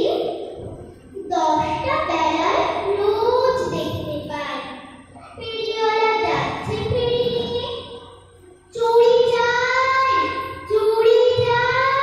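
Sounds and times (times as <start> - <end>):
child singing: 5.3 - 8.0, 8.7 - 12.0.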